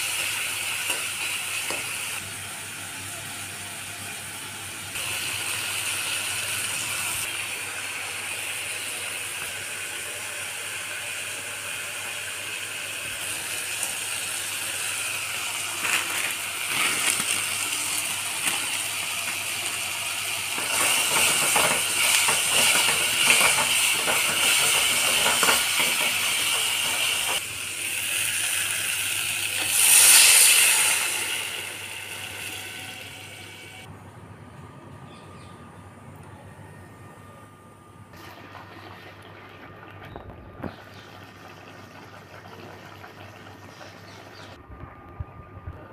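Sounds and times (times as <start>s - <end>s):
food sizzling in oil: 5.0s - 33.9s
water hissing in hot pan: 5.0s - 33.9s.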